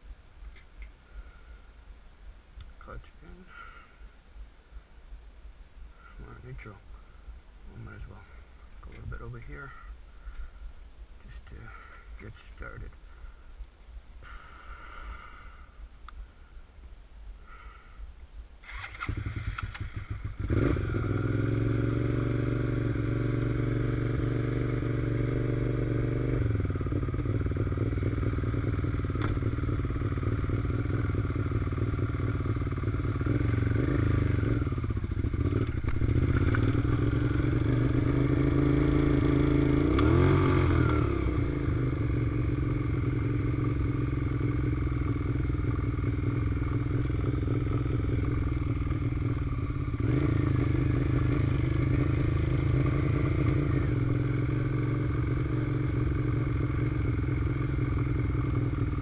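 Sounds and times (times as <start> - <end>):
motorcycle engine idling: 5.9 - 16.7, 17.4 - 59.0
engine revving: 18.6 - 59.0.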